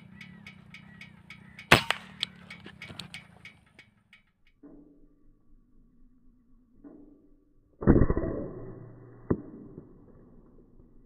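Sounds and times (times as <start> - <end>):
faint rhythmic clicking: 0.0 - 5.1
air rifle shot: 1.7 - 2.4.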